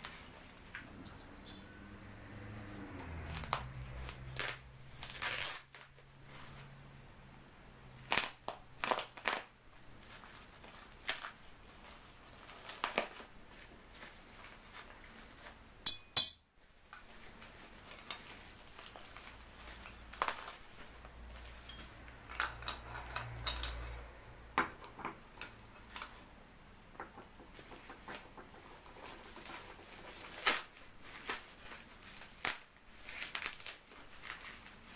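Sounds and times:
plastic packaging crinkling: 3.2s - 6.8s, 8.0s - 15.7s, 16.8s - 22.2s, 27.6s - 34.9s
small metal parts clinking: 21.4s - 24.1s.

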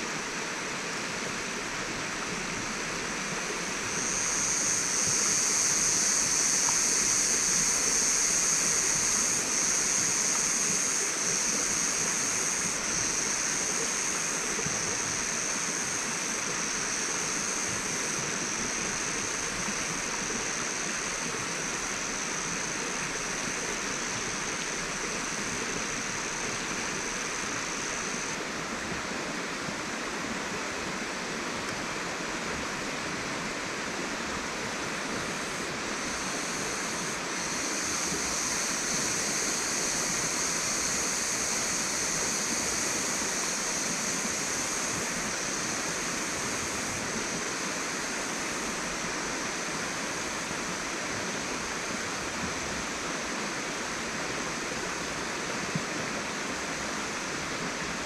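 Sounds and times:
high-pitched hum: 2.5s - 29.0s.

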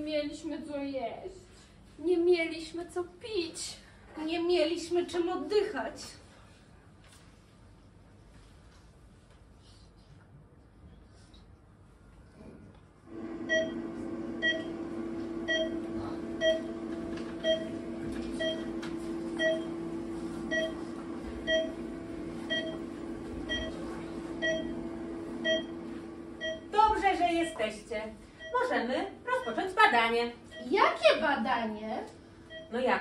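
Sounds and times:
steady electronic hum: 13.0s - 33.0s
short electronic beeps: 20.5s - 20.8s, 21.5s - 21.8s, 22.5s - 22.8s, 23.5s - 23.8s, 24.4s - 24.8s, 25.4s - 25.7s, 26.4s - 26.7s.

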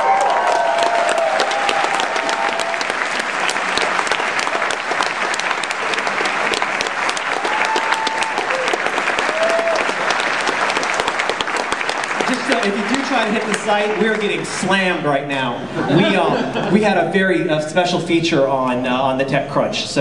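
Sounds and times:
crowd shouts: 0.0s - 2.9s, 7.4s - 10.0s
audience applauding: 0.0s - 15.0s.

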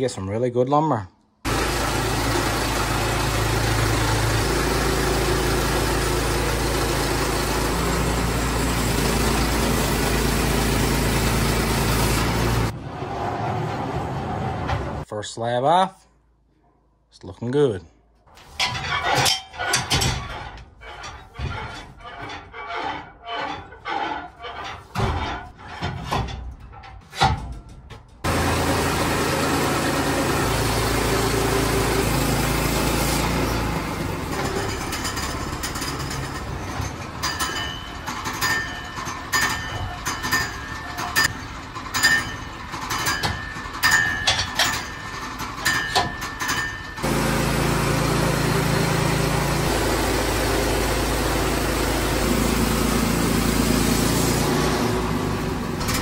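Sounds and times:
sawmill engine running: 1.4s - 12.9s, 28.2s - 56.0s
irregular knocking and clatter: 24.6s - 28.3s, 34.3s - 47.1s.

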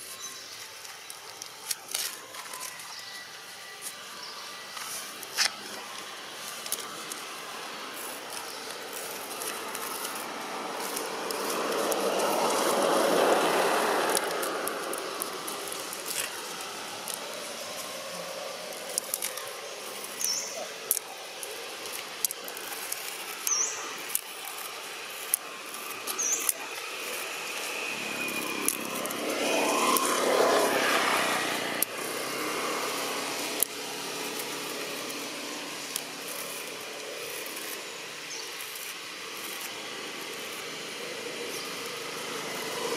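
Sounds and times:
road vehicles passing: 0.0s - 42.9s
small clicks: 18.7s - 30.8s.

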